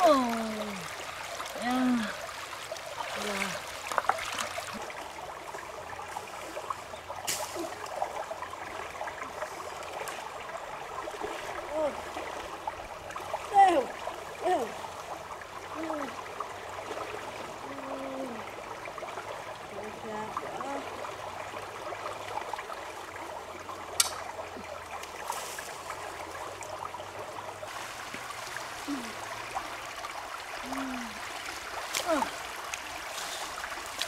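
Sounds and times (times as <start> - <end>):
rocky stream running: 0.0 - 34.0
sharp click: 24.0 - 24.2.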